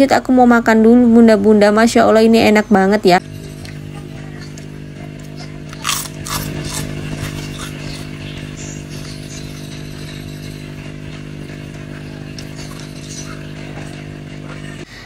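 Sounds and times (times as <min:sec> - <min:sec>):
low machine hum: 0:00.0 - 0:15.0
cracker crunching: 0:04.4 - 0:08.2.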